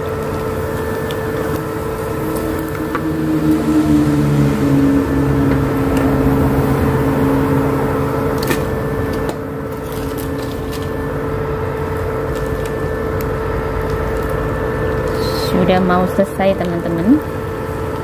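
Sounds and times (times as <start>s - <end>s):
induction cooker humming: 0.0s - 18.0s.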